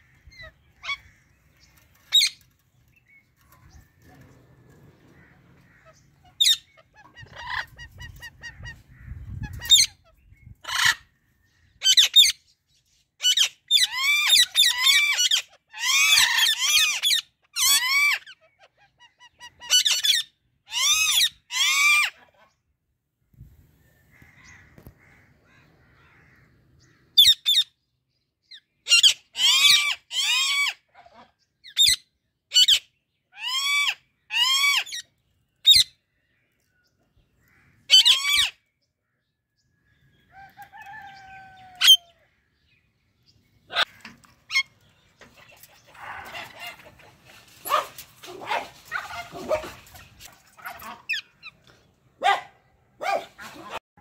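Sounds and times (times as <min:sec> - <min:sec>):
parrots screeching: 0:00.0 - 0:01.3, 0:05.2 - 0:11.1, 0:13.2 - 0:22.2, 0:28.8 - 0:30.9, 0:33.4 - 0:35.9, 0:37.9 - 0:38.6, 0:40.3 - 0:42.2.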